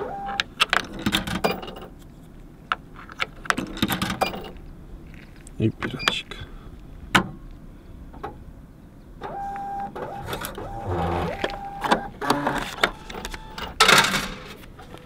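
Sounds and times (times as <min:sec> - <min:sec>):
ticket printer motor whirring: 0:09.3 - 0:13.8
printer rasp: 0:09.3 - 0:14.0.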